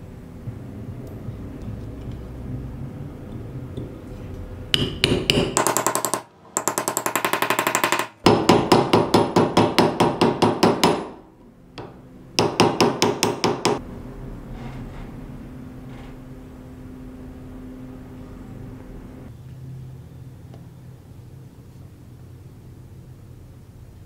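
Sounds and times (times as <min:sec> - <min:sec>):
small hammer tapping metal: 0:04.8 - 0:11.2, 0:11.8 - 0:13.8.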